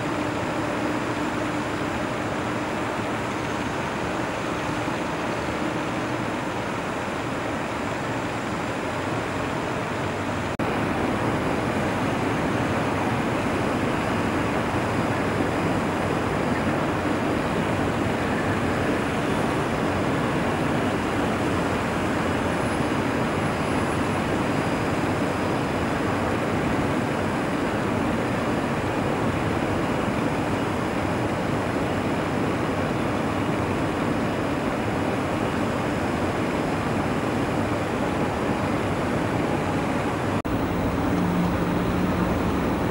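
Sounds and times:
distant city traffic roar: 0.0s - 42.9s
airport background noise: 37.7s - 42.9s.

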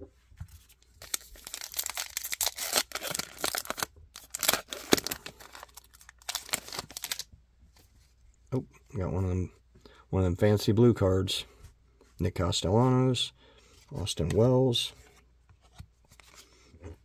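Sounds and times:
plastic wrapper crinkling and tearing: 1.0s - 7.3s.

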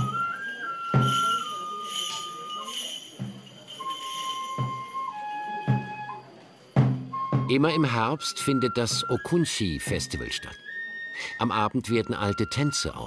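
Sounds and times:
drum beats: 0.0s - 10.3s
bell trees jingling: 0.0s - 13.0s
flute holding long notes: 3.9s - 6.4s, 7.1s - 11.5s.

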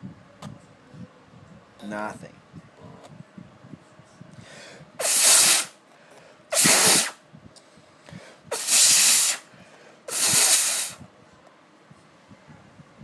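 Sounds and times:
air blasts hissing: 4.9s - 5.8s, 6.5s - 7.2s, 8.4s - 9.5s, 10.1s - 11.0s.

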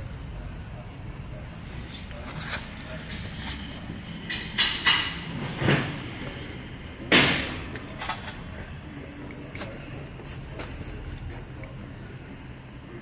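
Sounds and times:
steady low hum: 0.0s - 13.0s
metal clanks: 1.9s - 8.6s.

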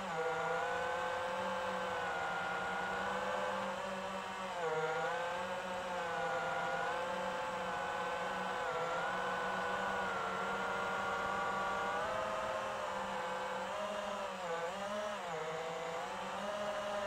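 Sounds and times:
drone motors whining: 0.0s - 17.0s.

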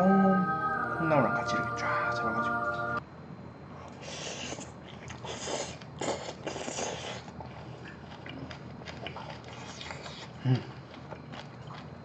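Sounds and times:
wet chewing: 4.6s - 12.0s.

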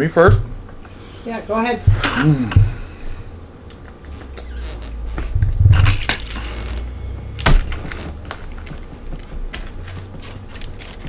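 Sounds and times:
pizza cutter crunching through crust: 7.7s - 11.0s.

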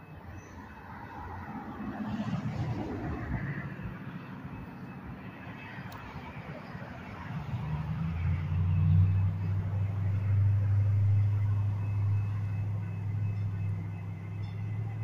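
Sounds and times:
train engine drone: 0.0s - 15.0s.

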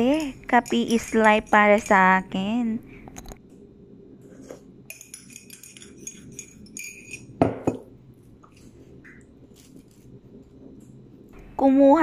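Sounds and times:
teaspoon clinking against mug: 4.9s - 7.8s.

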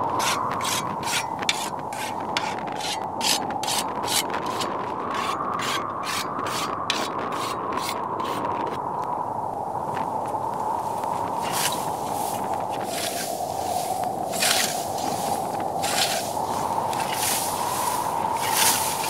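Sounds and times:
sickle blade rasping: 0.2s - 8.4s, 12.8s - 13.4s, 14.3s - 19.0s
steady hiss: 10.1s - 19.0s.

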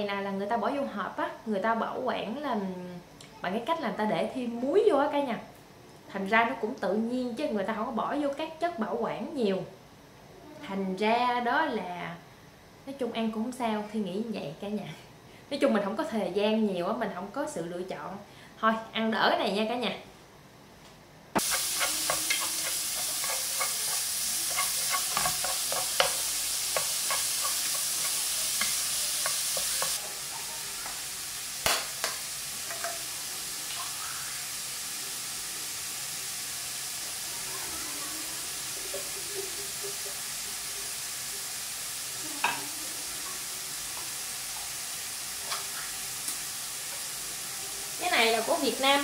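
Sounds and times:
meat sizzling in a frying pan: 21.4s - 49.0s.

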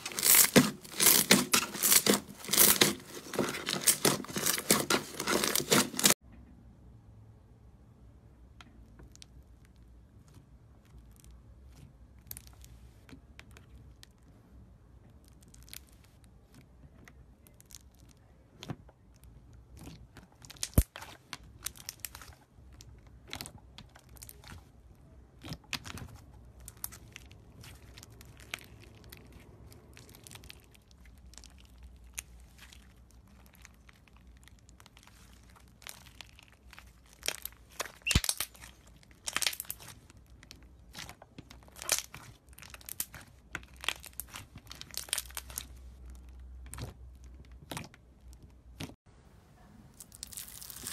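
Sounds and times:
slime popping: 25.4s - 40.0s
slime crackling and clicking: 25.4s - 45.7s.

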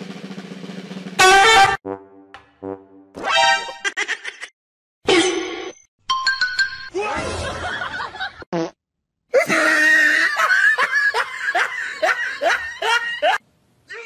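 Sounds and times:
person laughing: 3.8s - 4.5s, 9.4s - 13.4s.

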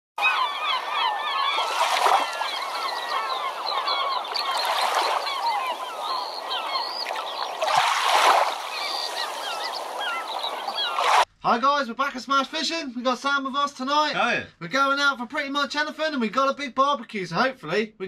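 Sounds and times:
birds chirping: 0.2s - 11.3s.

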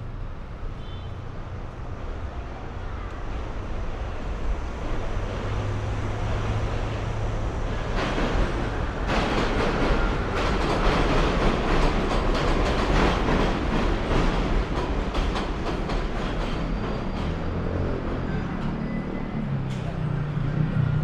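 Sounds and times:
elevated train rumbling: 0.0s - 21.0s
wheels clacking over rail joints: 4.7s - 20.1s.

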